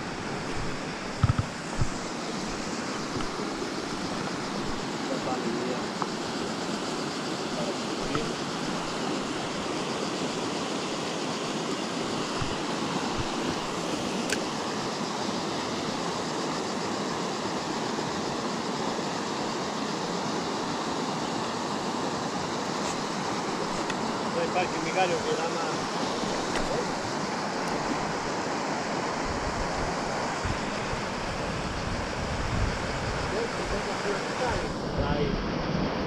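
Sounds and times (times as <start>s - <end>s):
river water rushing over rocks: 0.0s - 36.0s
sharp click: 14.2s - 14.5s.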